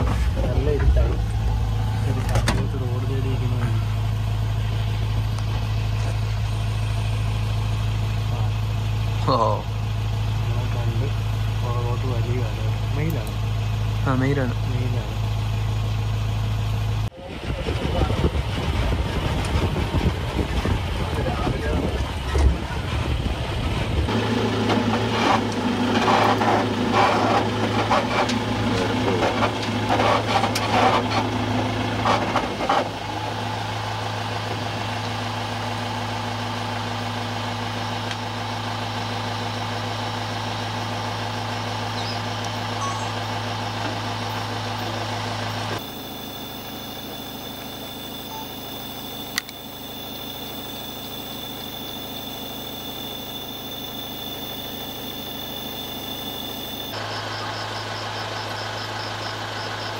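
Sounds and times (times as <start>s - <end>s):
jeep engine idling: 0.0s - 59.9s
steady high-pitched tone: 42.0s - 43.8s, 45.8s - 57.0s.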